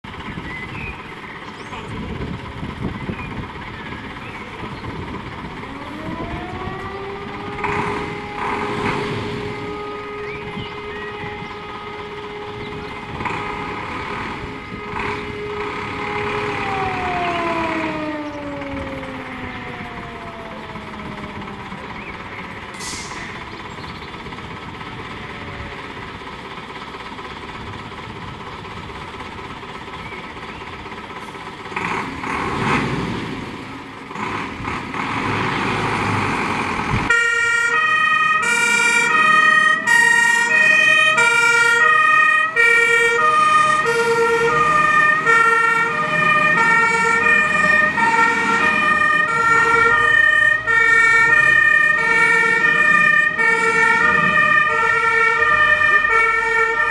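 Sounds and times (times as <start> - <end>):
fire engine diesel engine: 0.0 - 56.9
two-tone siren: 5.4 - 23.4, 37.1 - 56.9.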